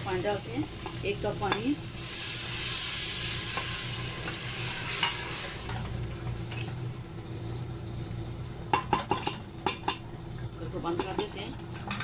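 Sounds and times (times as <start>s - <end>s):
water sizzling in hot pot: 0.0s - 12.0s.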